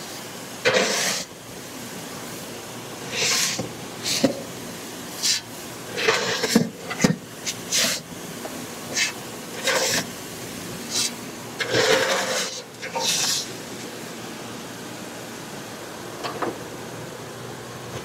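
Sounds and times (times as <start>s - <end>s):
soybeans scraped across floor: 0.7s - 1.3s, 10.9s - 13.5s.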